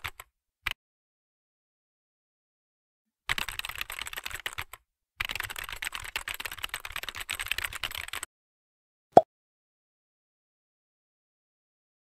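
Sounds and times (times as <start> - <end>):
computer keyboard typing: 0.0 - 0.3, 3.3 - 8.3.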